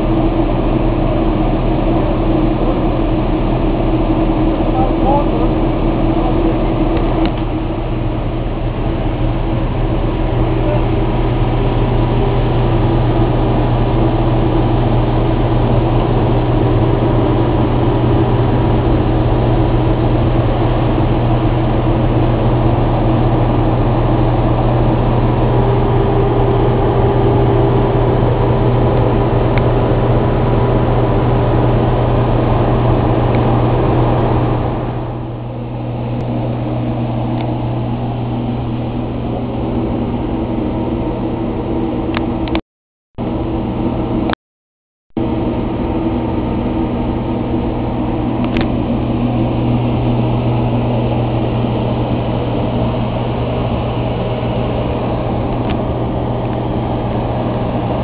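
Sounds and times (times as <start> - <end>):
aircraft auxiliary power unit drone: 0.0 - 42.6, 43.2 - 44.4, 45.2 - 58.0.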